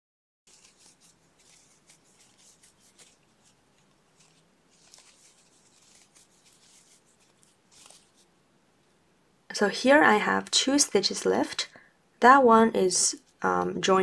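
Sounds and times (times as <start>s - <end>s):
yarn and crochet hook rustling: 0.5s - 9.0s.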